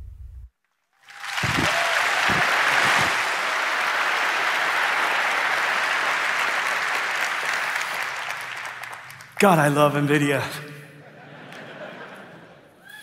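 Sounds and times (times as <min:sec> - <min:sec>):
large audience applauding: 0:00.9 - 0:10.2.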